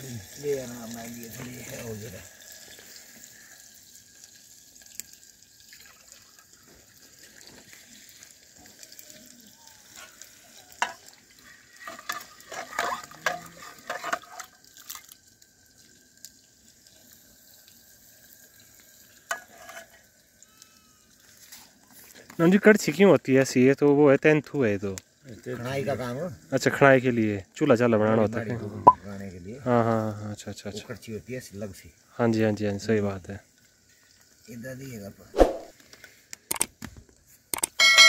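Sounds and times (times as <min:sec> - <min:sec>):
food hissing in a pot: 0:00.0 - 0:15.4, 0:16.0 - 0:22.6, 0:29.0 - 0:36.5.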